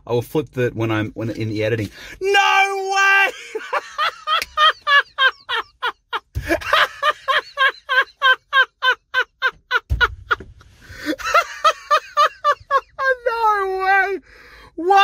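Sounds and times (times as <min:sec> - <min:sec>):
man laughing uncontrollably: 0:03.0 - 0:13.5
low thumps: 0:09.6 - 0:10.8.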